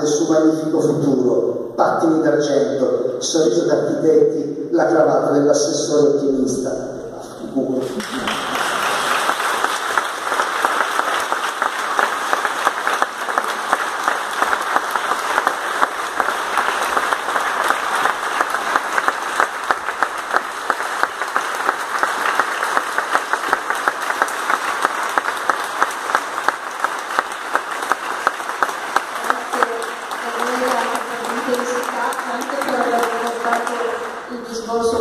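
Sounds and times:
audience applauding: 0:07.8 - 0:34.9.

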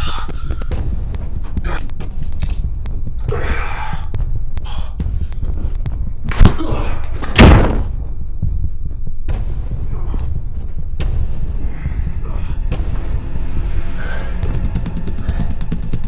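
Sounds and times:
body falling to the floor: 0:06.2 - 0:08.2
sledgehammer blow thud: 0:07.3 - 0:08.0.

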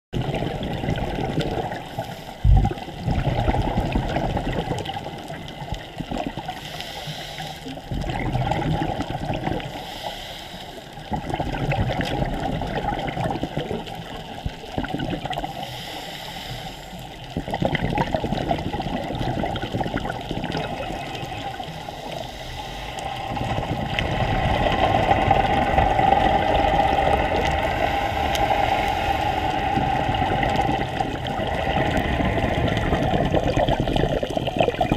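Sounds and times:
bubbles gurgling: 0:00.1 - 0:06.6, 0:07.8 - 0:09.8, 0:11.0 - 0:15.6, 0:17.0 - 0:34.9
regulator breathing underwater: 0:01.7 - 0:02.8, 0:06.5 - 0:08.0, 0:09.5 - 0:11.1, 0:15.4 - 0:17.2, 0:20.7 - 0:34.4
low thump: 0:02.4 - 0:02.7.

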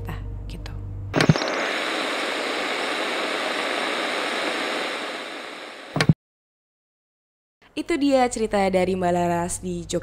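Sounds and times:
tv static hiss: 0:01.2 - 0:06.2.

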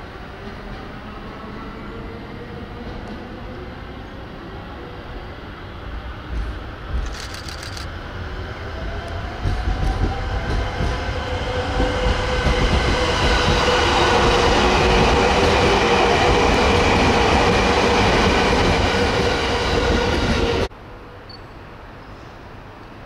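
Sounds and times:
electric train passing: 0:03.4 - 0:23.0
train wheels whining on rails: 0:05.9 - 0:20.7.

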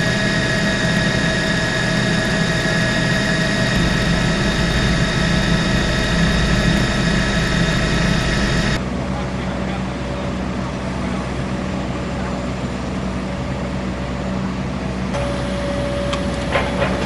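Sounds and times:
helicopter turbine and rotor noise: 0:00.0 - 0:17.0.

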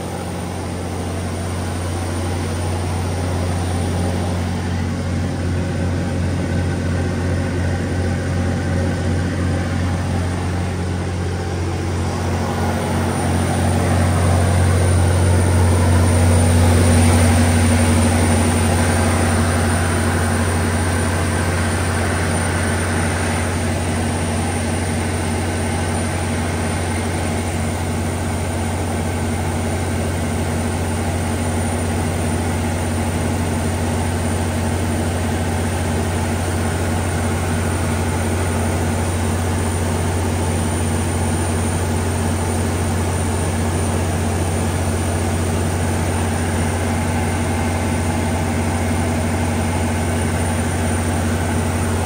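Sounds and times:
diesel generator droning: 0:00.0 - 0:52.0.

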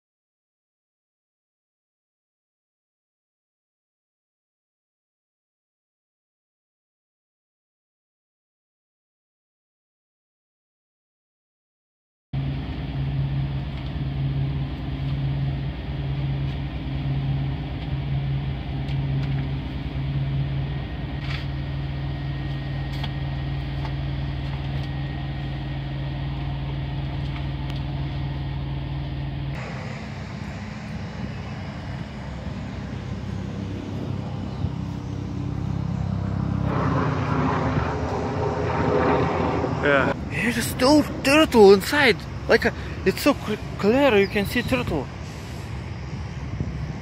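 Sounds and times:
rough noisy rumble: 0:12.4 - 0:47.0
truck engine and road noise: 0:12.4 - 0:47.0.

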